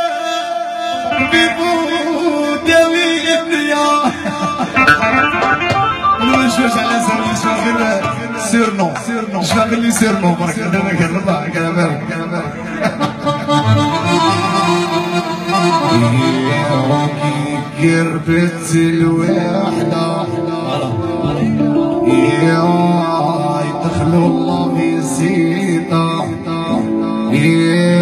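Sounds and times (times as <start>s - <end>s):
live instrumental band music: 4.1s - 9.9s, 12.1s - 18.4s, 19.0s - 28.0s.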